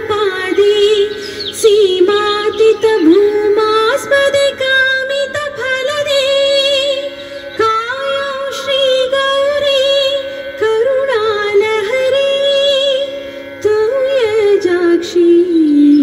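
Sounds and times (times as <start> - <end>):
steady drone: 0.0 - 15.4
woman singing slow melody: 0.0 - 16.0.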